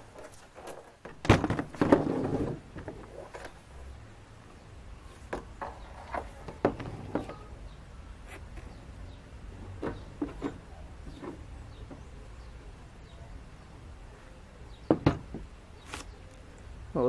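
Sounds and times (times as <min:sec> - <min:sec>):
knock and scraping clatter on wood: 0:00.1 - 0:03.6, 0:05.2 - 0:07.5, 0:09.7 - 0:12.1.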